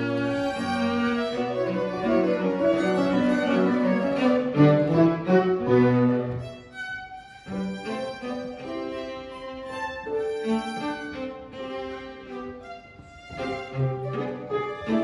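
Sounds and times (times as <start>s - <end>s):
violin and cello duet: 0.0s - 15.0s.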